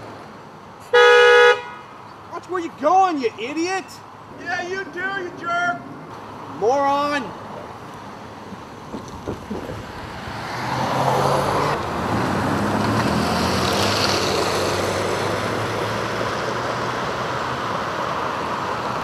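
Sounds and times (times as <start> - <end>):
car engine hum: 0.0 - 19.0.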